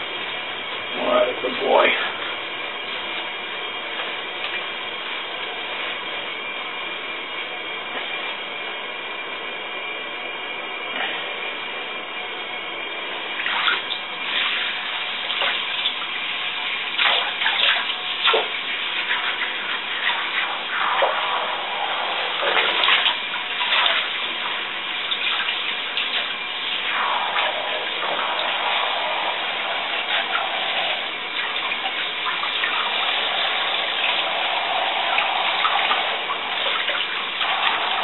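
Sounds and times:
water splashing: 13.4s - 38.0s
shower spray hissing: 13.5s - 38.0s.

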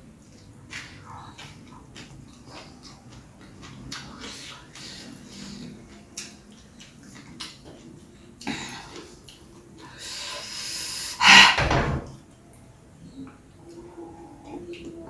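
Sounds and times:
mouth clicks and smacks: 0.4s - 9.5s
breath hissing in: 9.9s - 11.6s
sharp burst of breath: 10.0s - 11.6s.

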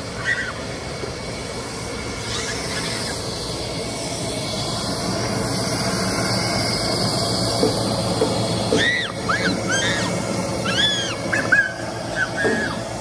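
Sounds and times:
air blower hissing: 0.0s - 13.0s
child squealing: 0.2s - 0.6s, 8.7s - 12.8s.

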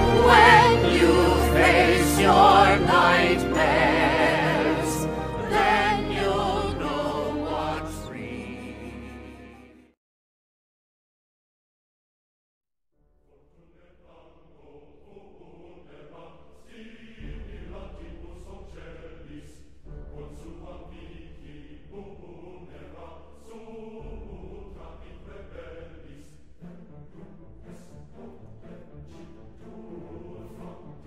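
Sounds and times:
music track: 0.0s - 10.0s.

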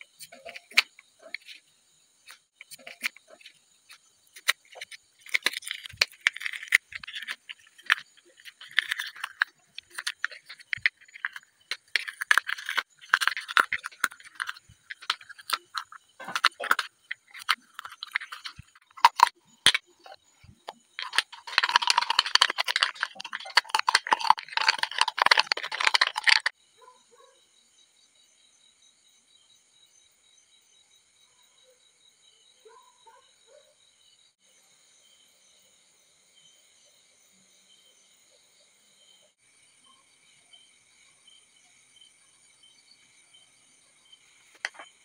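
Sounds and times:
metal tool scraping foam: 2.6s - 19.8s, 21.0s - 26.5s.

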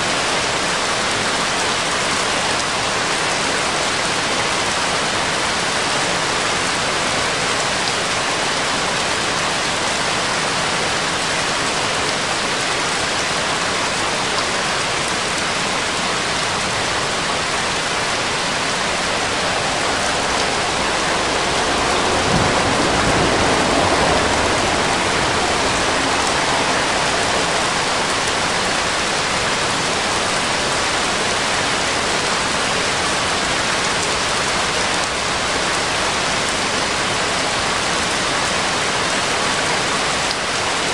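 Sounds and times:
steady rushing noise: 13.1s - 40.9s
low rumble: 17.5s - 29.4s.

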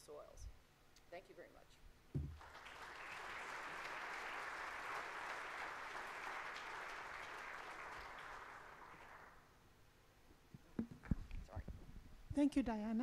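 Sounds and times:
audience applauding: 2.3s - 9.5s.

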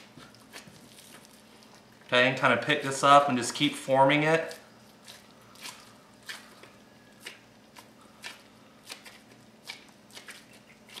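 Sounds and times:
wet squishes of raw meat: 4.4s - 11.0s.

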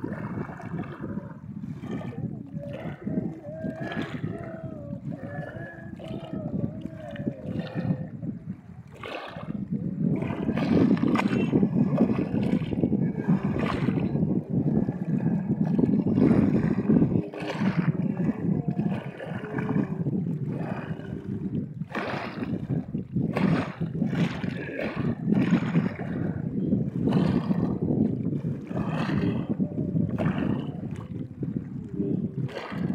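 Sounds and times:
steady low rumble: 0.0s - 22.0s
water lapping and splashing: 0.0s - 32.9s.

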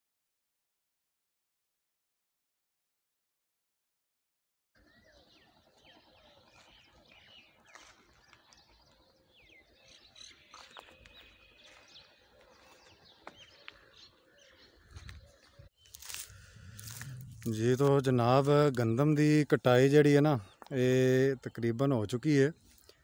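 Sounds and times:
birds chirping: 4.8s - 23.0s
low rumble: 16.0s - 18.2s.

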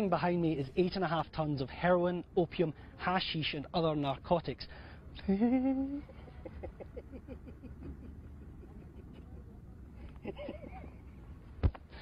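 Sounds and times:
low steady rumble: 0.0s - 12.0s
man giggling: 5.2s - 9.6s, 10.2s - 11.0s.

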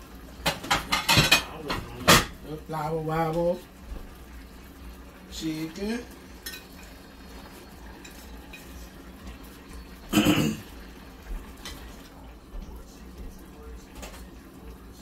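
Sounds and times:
dishes and utensils clinking: 0.4s - 2.4s, 6.4s - 7.0s, 7.9s - 8.9s.

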